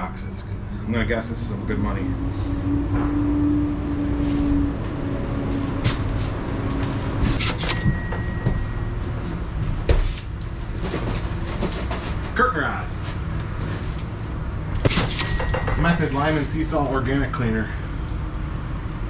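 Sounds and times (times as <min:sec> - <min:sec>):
steady low rumble: 0:12.6 - 0:19.0.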